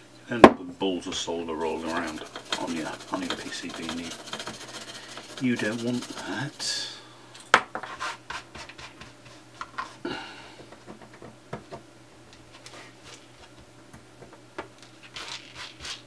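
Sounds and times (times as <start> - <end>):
fingers rubbing and scraping: 1.2 - 6.8, 15.0 - 16.0.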